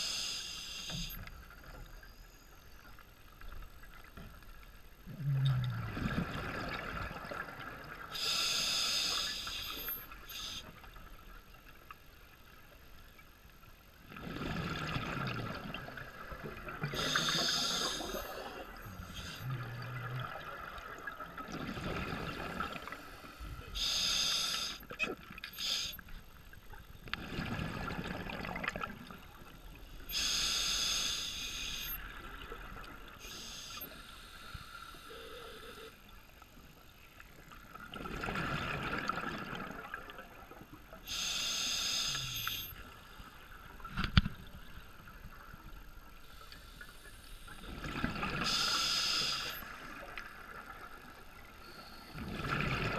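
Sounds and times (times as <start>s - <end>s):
regulator breathing hiss: 0.0s - 1.2s, 8.2s - 10.7s, 16.9s - 19.4s, 23.1s - 24.8s, 25.5s - 26.0s, 30.1s - 32.0s, 33.2s - 36.0s, 41.1s - 42.8s, 48.4s - 49.7s.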